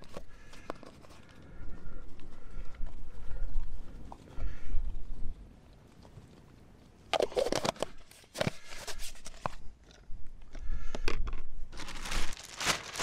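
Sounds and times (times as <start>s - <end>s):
food bag crinkling: 11.7s - 13.0s.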